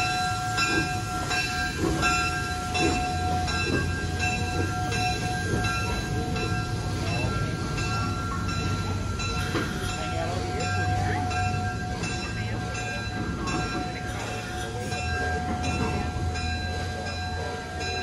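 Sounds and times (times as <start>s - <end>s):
locomotive bell ringing: 0.0s - 18.0s
rumble of locomotive and rolling stock: 0.0s - 18.0s.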